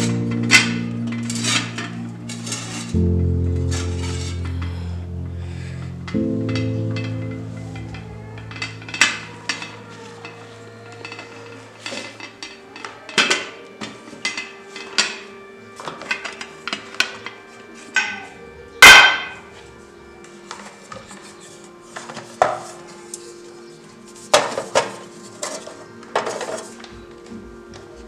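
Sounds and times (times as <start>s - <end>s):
metal kitchenware clinking: 6.5s - 17.4s.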